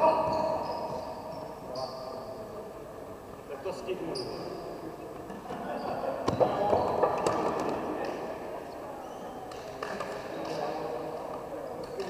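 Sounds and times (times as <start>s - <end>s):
crowd voices: 0.0s - 12.0s.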